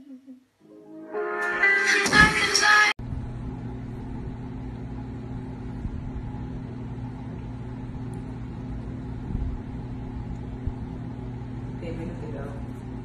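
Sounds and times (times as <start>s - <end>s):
steady low hum: 3.0s - 13.0s.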